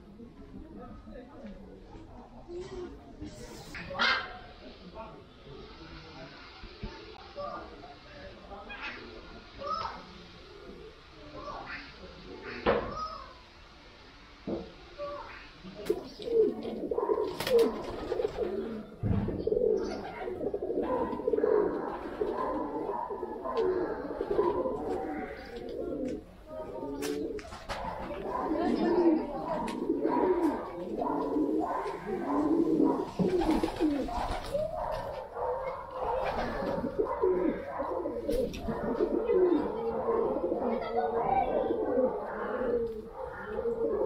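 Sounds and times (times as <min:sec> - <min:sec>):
birds cooing: 0:15.8 - 0:44.0.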